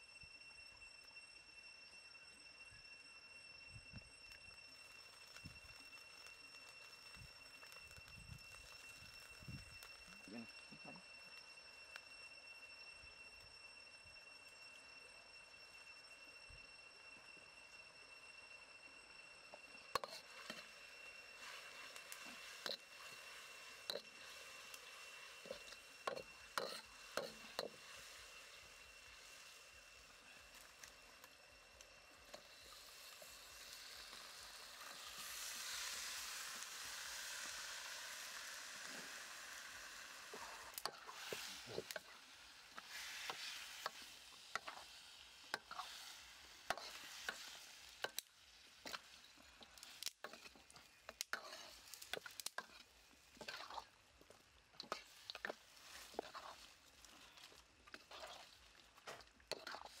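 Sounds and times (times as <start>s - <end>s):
meat sizzling in hot oil: 3.4s - 14.4s, 19.4s - 60.0s
metal spatula scraping a wok: 20.0s - 29.6s, 40.2s - 53.9s, 54.8s - 60.0s.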